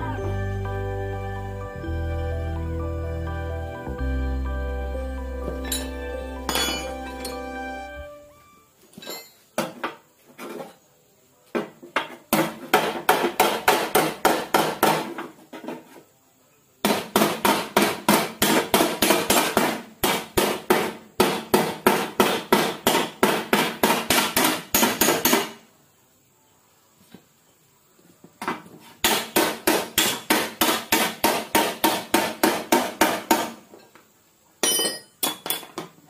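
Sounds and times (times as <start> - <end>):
hammer beating sheet metal: 12.4 - 15.2, 16.8 - 25.6, 29.0 - 33.6.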